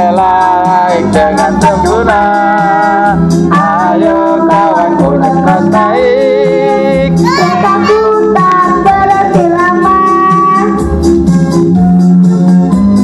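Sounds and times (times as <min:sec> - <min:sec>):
karaoke backing music: 0:00.0 - 0:13.0
children singing: 0:07.2 - 0:09.5.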